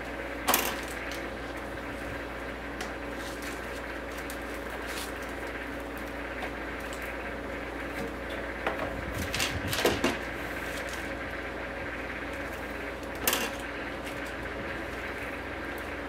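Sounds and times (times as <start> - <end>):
machine hum: 0.0 - 16.0
clacks and crinkling: 2.8 - 7.2.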